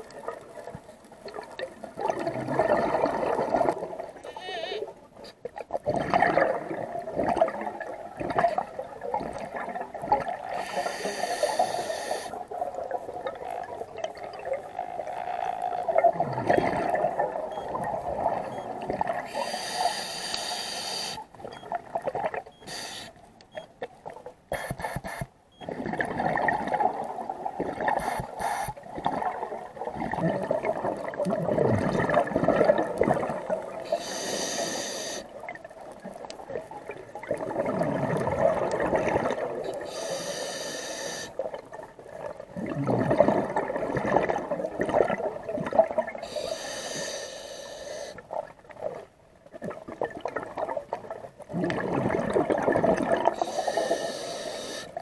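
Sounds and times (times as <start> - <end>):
bubbling exhaust underwater: 0.0 - 4.9, 5.6 - 20.1, 24.5 - 55.0
regulator inhale hiss: 10.6 - 12.4, 19.3 - 21.3, 22.6 - 23.2, 28.0 - 28.8, 33.8 - 35.3, 39.8 - 41.4, 46.2 - 48.2, 53.4 - 55.0.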